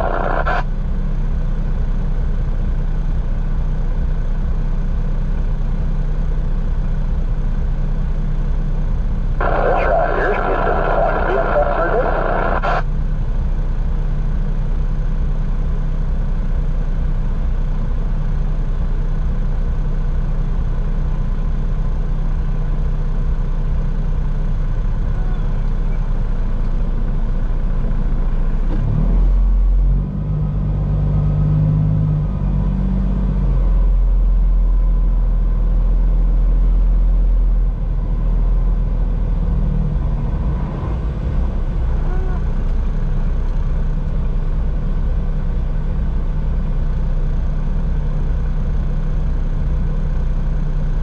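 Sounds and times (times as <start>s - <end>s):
diesel engine revving: 0.0s - 0.7s, 9.4s - 12.8s, 27.6s - 35.4s, 36.2s - 46.1s
diesel truck engine idling: 0.0s - 28.7s, 33.8s - 51.0s.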